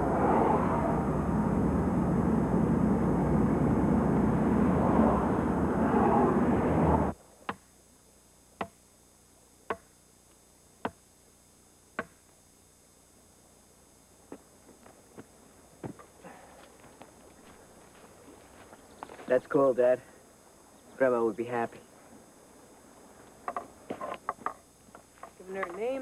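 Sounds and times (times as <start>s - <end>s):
road and wind noise in car: 0.0s - 7.2s.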